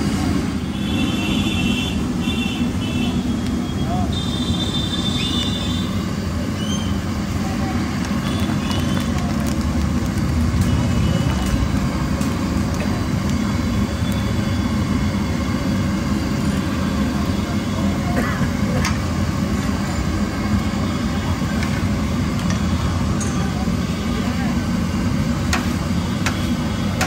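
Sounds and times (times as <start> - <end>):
oil bubbling and sizzling: 0.0 - 27.0.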